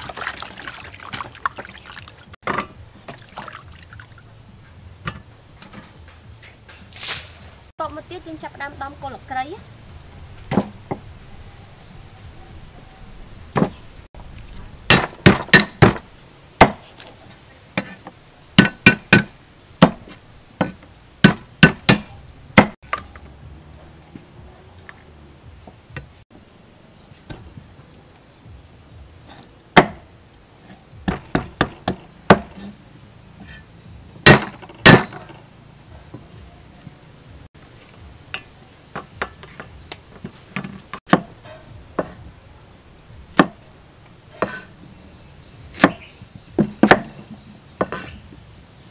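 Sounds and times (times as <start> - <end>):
cleaver chopping on wooden board: 16.6 - 16.9, 18.6 - 22.8, 29.8 - 30.0, 31.0 - 32.7, 34.2 - 35.2, 41.0 - 41.3, 43.3 - 43.6, 45.7 - 47.2.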